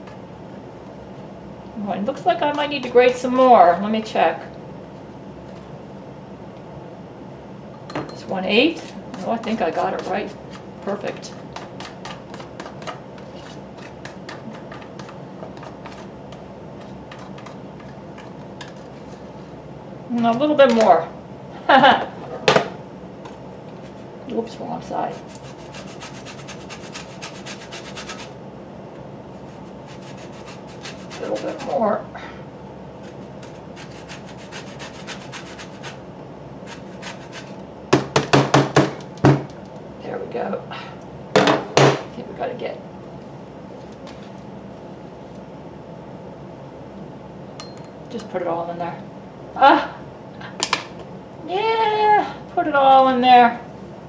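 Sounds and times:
steady low hum: 0:00.0 - 0:54.0
lemon rasping on grater: 0:25.1 - 0:28.3, 0:29.4 - 0:31.8, 0:33.0 - 0:36.0, 0:36.7 - 0:37.6
loud sharp knocks: 0:37.9 - 0:39.5.

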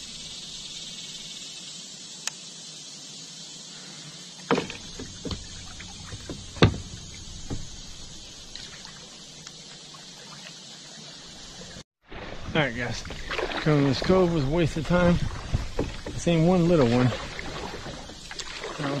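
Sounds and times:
steady high hiss: 0:00.0 - 0:11.8
paddle splashing water: 0:04.4 - 0:19.0
paddle knocking on kayak: 0:04.5 - 0:08.0, 0:14.8 - 0:18.6.

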